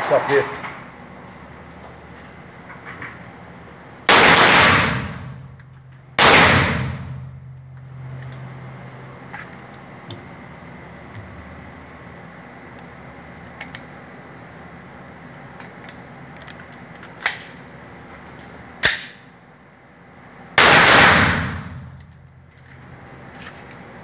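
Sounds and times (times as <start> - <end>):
pistol shots: 4.1 - 5.4, 6.2 - 7.4, 20.6 - 22.0.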